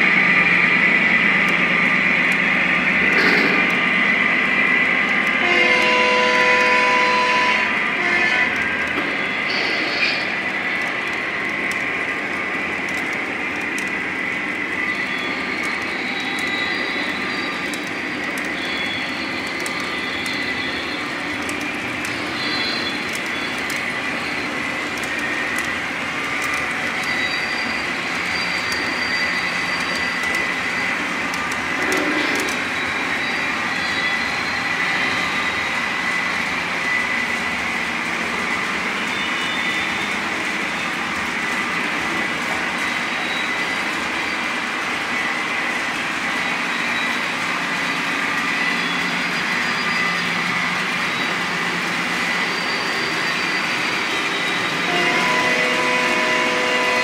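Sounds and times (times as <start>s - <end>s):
constant high whine: 0.0s - 57.0s
model train rolling rumble: 0.0s - 57.0s.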